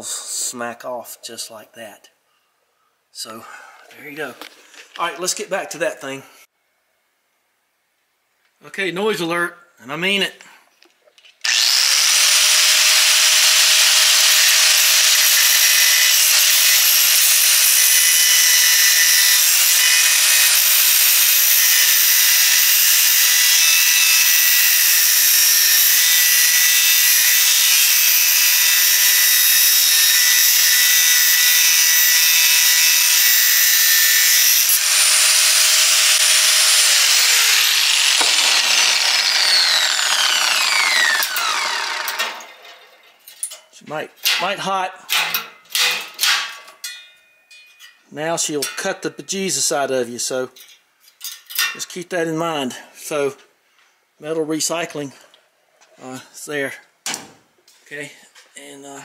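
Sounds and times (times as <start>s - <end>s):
die grinder cutting metal: 11.4s - 43.2s.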